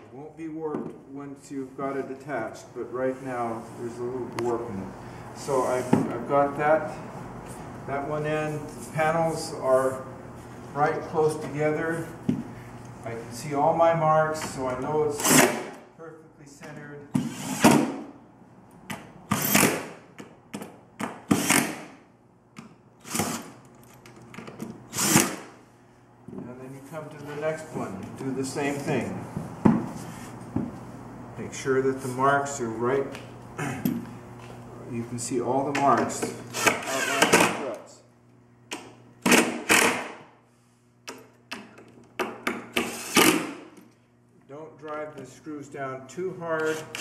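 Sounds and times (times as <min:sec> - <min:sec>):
cordless drill driving screws: 0:23.0 - 0:23.6, 0:24.9 - 0:25.4, 0:36.5 - 0:37.5, 0:42.7 - 0:43.5, 0:46.6 - 0:47.0.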